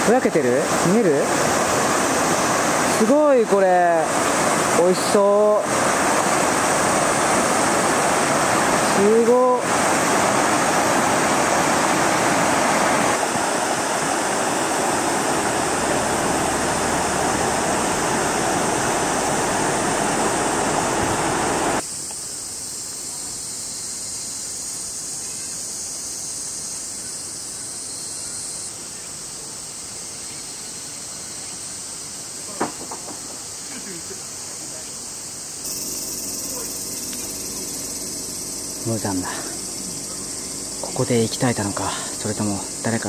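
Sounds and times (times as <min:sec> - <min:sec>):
river rushing over rapids: 0:00.0 - 0:21.8, 0:35.7 - 0:43.0
summer insects chorus: 0:00.0 - 0:43.0.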